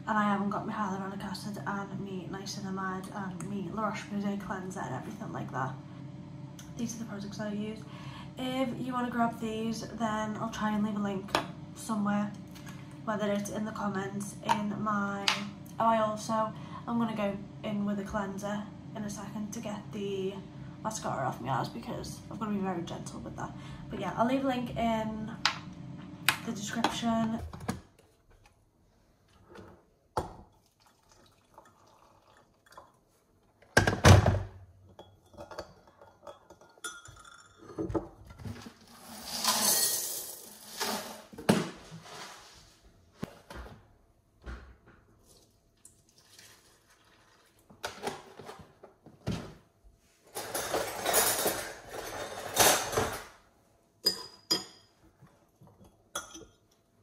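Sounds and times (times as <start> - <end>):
liquid poured into mug: 30.6 - 33.0, 45.8 - 47.6.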